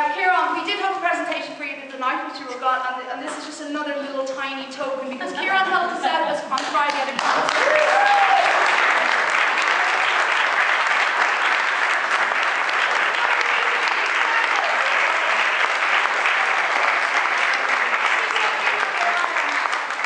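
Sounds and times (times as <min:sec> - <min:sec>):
audience applause: 0:06.5 - 0:20.0.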